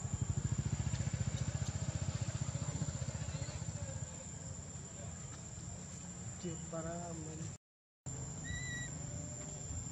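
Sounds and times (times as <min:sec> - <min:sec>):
small motorcycle engine running: 0:00.0 - 0:04.8.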